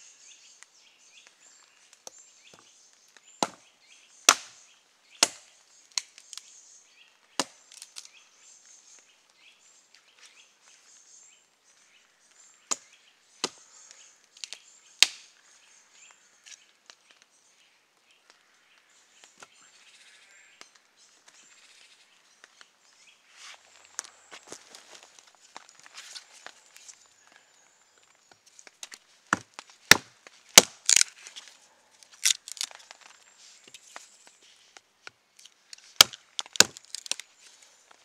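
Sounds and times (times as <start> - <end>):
hatchet chopping log: 3.4 - 3.7, 4.3 - 4.6, 5.2 - 5.5, 7.4 - 7.6, 29.3 - 31.0, 36.0 - 37.2.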